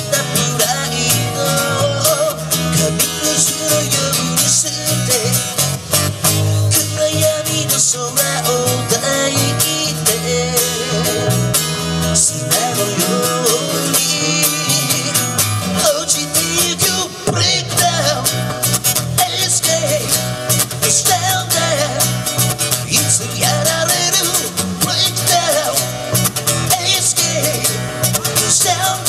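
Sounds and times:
man singing: 0.0s - 5.7s, 6.5s - 29.0s
electric bass: 0.0s - 29.0s
strummed acoustic guitar: 0.0s - 29.0s.

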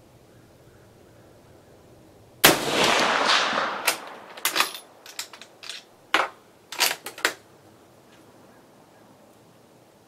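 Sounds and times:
rifle shot echo: 2.4s - 5.0s.

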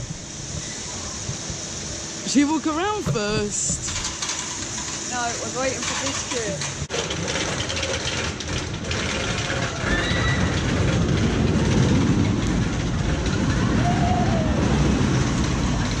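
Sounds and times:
roller coaster train rumbling: 0.0s - 16.0s.

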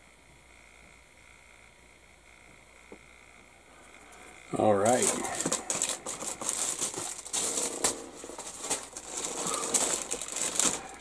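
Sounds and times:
plastic bag crinkling: 4.1s - 11.0s.

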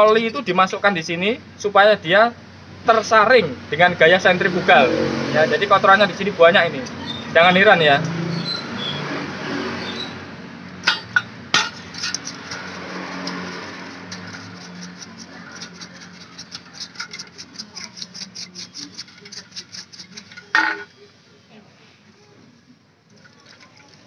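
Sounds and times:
paintbrush scrubbing metal: 10.8s - 21.0s.

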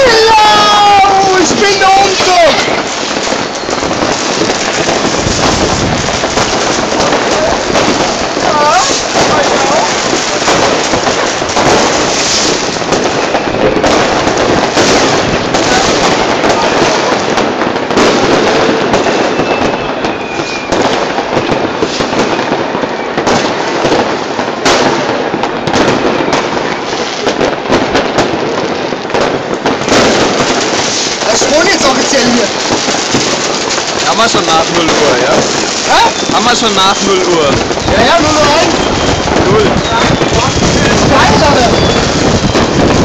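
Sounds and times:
fireworks crackling and banging: 0.0s - 43.0s.

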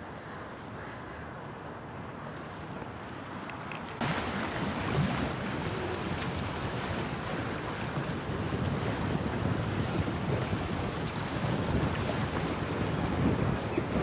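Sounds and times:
river water splashing: 2.2s - 14.0s
wind rushing over microphone: 3.9s - 14.0s.

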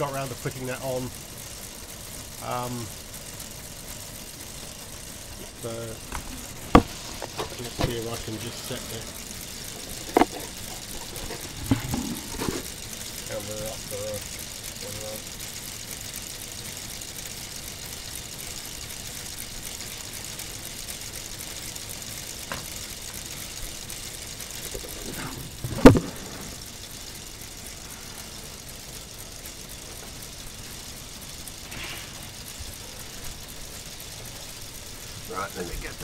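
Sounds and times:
faint steady hiss: 5.4s - 9.7s, 23.7s - 36.0s.

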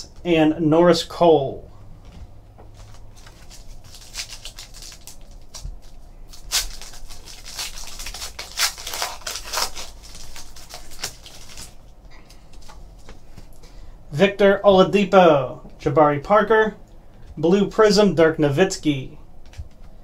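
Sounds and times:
foil pack tearing and crinkling: 2.8s - 11.8s.

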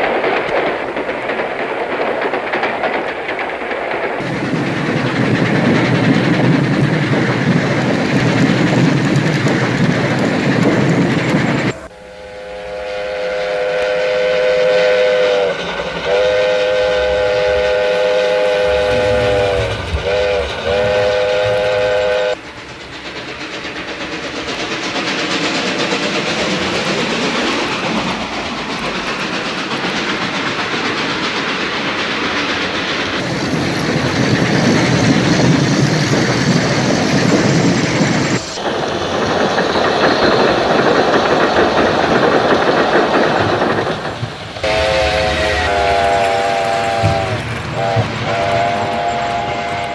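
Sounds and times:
steam locomotive whistle: 11.7s - 22.4s, 44.6s - 49.9s
model train wheels rattling: 18.7s - 48.2s.

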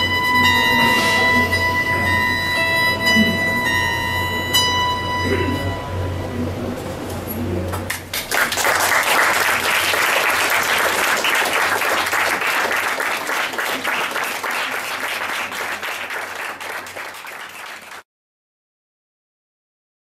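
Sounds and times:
audience applauding: 7.7s - 18.0s.

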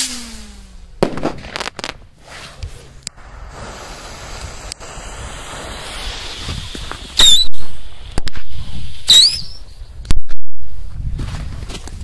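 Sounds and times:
sharp cracks: 0.0s - 3.2s
firework fuses hissing: 1.3s - 10.0s
firework shrieking whistle: 2.2s - 9.8s.

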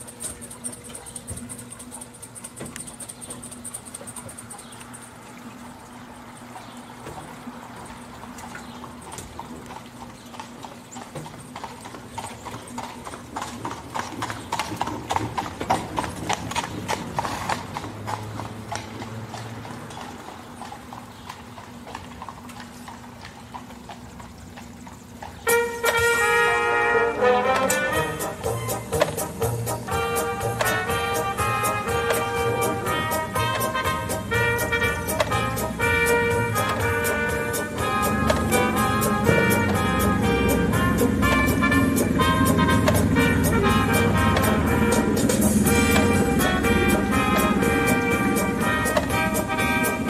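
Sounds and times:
horse hooves clip-clopping: 0.0s - 50.0s
steady low hum: 22.7s - 50.0s.

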